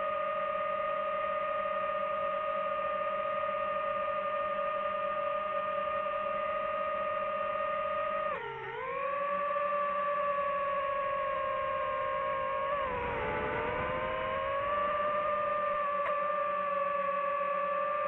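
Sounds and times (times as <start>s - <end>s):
drone propellers whining: 8.3s - 18.0s.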